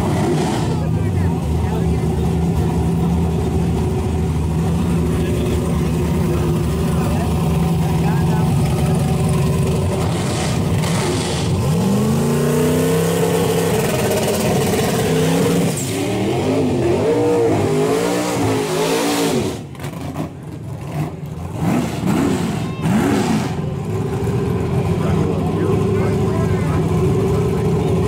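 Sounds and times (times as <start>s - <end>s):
drag car engine revving: 0.0s - 28.0s.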